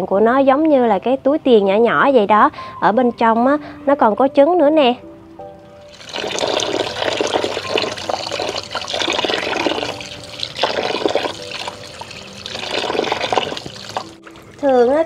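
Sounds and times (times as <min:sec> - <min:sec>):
running water splashing: 0:05.9 - 0:15.0.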